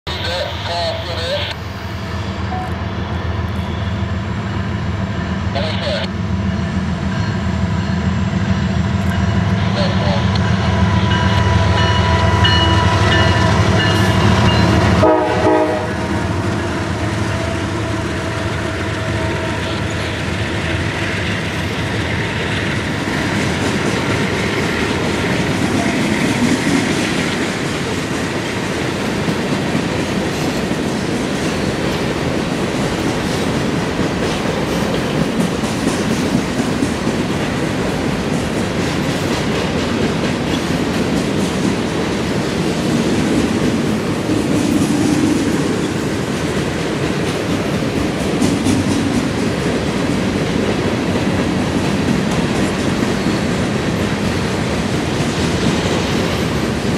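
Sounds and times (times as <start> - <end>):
locomotive horn: 12.1 - 20.0
wheels clacking over rails: 16.4 - 56.9.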